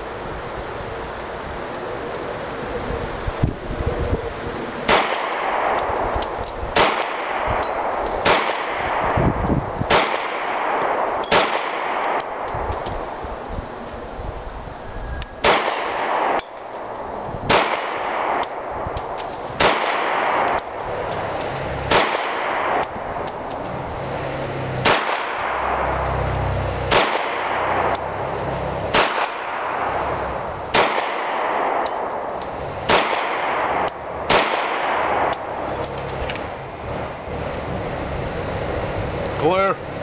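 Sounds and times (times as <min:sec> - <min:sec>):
pistol shots with echo: 0:04.9 - 0:12.6, 0:15.4 - 0:16.7, 0:17.5 - 0:18.9, 0:19.6 - 0:20.8, 0:21.9 - 0:23.0, 0:24.8 - 0:26.0, 0:26.9 - 0:28.0, 0:28.9 - 0:30.1, 0:30.7 - 0:32.3, 0:32.9 - 0:35.6.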